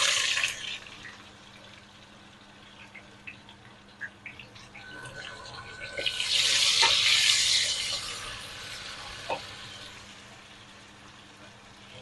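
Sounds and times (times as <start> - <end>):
onions sizzling in hot oil: 6.0 - 12.0.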